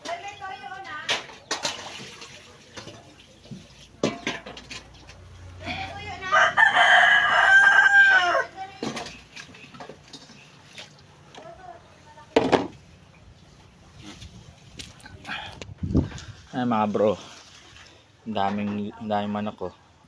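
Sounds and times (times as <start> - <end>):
rooster crowing: 6.2 - 8.6.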